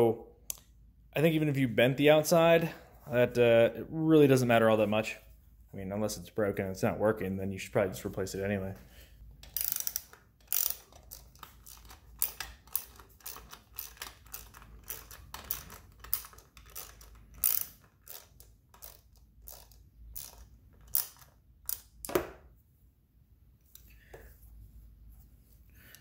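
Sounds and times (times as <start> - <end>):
socket ratchet clicking: 9.4 - 22.1.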